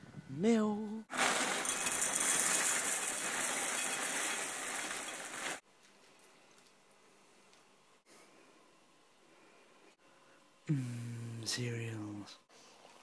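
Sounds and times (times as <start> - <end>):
cereal rattling into a bowl: 1.1 - 5.6.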